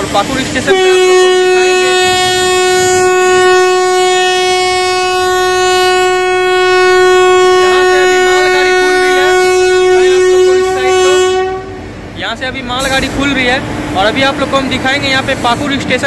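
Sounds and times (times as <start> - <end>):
locomotive horn blast: 0.0 - 12.0.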